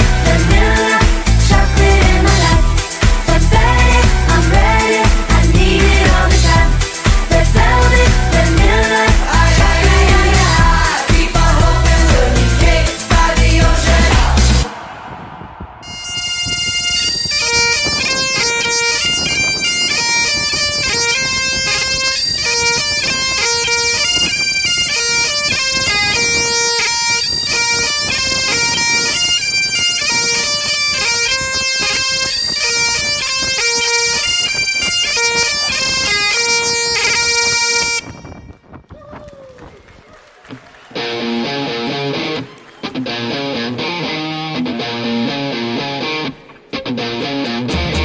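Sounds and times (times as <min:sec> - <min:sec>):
bagpipe music: 0:15.8 - 0:38.5.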